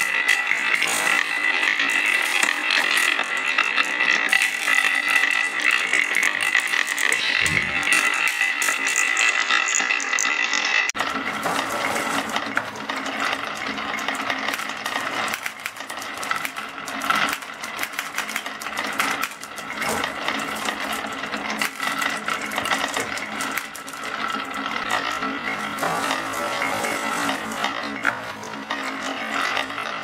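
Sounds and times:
marbles rolling on wood: 0:00.0 - 0:30.0.

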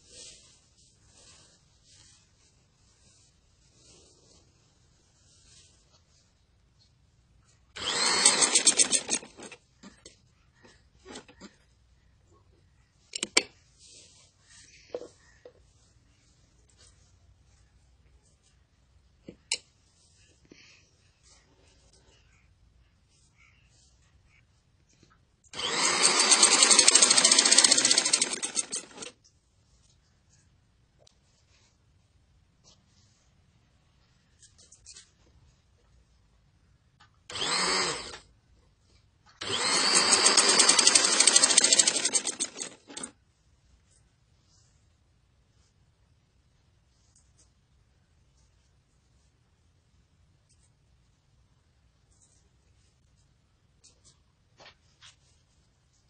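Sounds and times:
sewing machine stitching: 0:07.8 - 0:09.9, 0:25.6 - 0:29.2, 0:37.3 - 0:38.2, 0:39.4 - 0:43.2.

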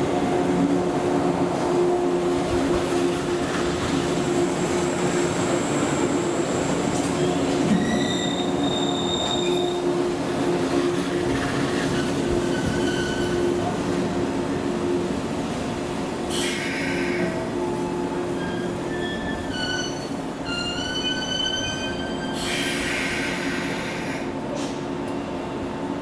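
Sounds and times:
wheel squeals: 0:07.7 - 0:09.8.

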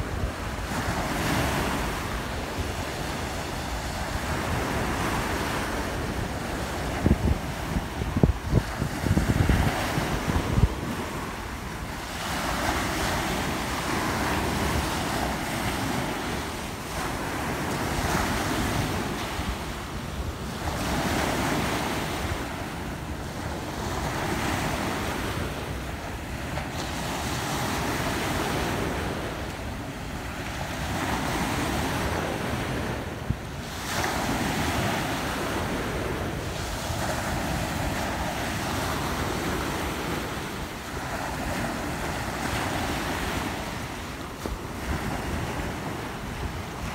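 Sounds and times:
ocean surf breaking: 0:00.0 - 0:46.9
wind buffeting microphone: 0:00.0 - 0:46.9.

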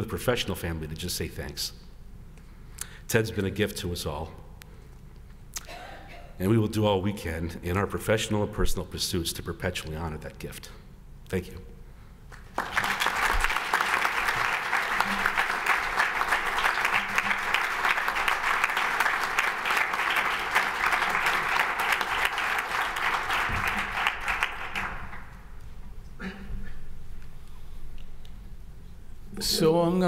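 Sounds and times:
audience applauding: 0:12.3 - 0:25.4.

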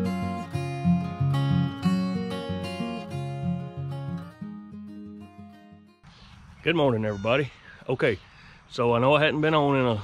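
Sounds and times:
acoustic guitar strumming: 0:00.0 - 0:06.0.

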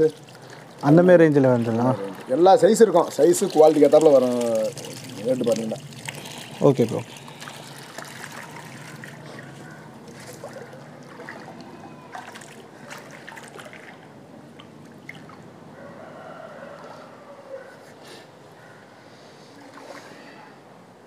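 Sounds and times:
water splashing and trickling: 0:00.0 - 0:15.8, 0:19.5 - 0:20.6
small splashes of fish: 0:03.2 - 0:15.4.

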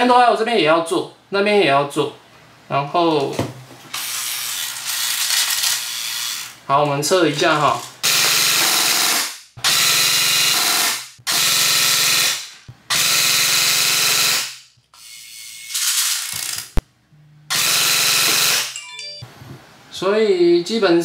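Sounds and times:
airsoft rifle firing full-auto bursts: 0:08.0 - 0:14.6.

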